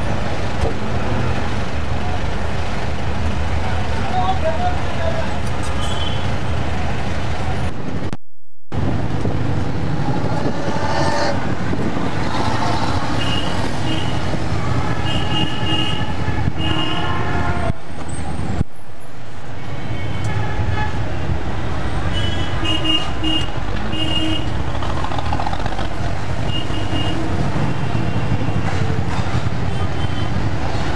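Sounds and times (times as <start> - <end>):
car engine and road noise: 0.0 - 30.9
car horns tooting: 15.0 - 17.8.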